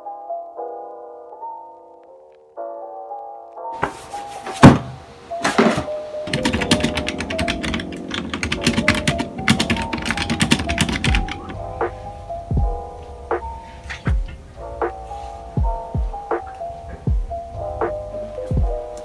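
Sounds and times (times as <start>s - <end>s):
soft background music: 0.0s - 19.0s
loud thumps: 4.6s - 5.9s
typing on computer keyboard: 6.3s - 11.5s.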